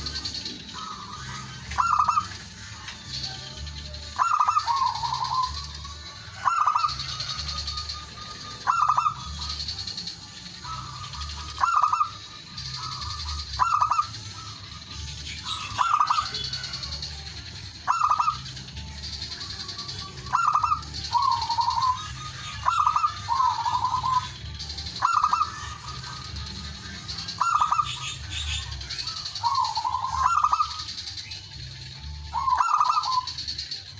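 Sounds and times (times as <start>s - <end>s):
dove cooing: 0.0s - 2.9s, 4.1s - 14.7s, 15.3s - 17.1s, 17.8s - 18.6s, 19.7s - 24.4s, 25.0s - 26.6s, 27.3s - 30.9s, 32.3s - 33.5s
steady background noise: 0.0s - 33.9s.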